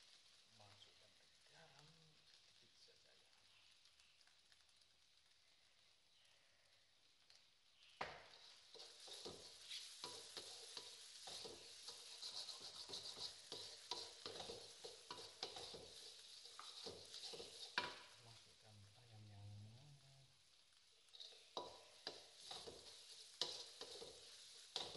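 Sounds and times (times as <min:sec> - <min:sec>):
light sizzle of frying: 0:00.0 - 0:24.9
spatula scraping wok: 0:08.2 - 0:18.6, 0:21.0 - 0:24.9.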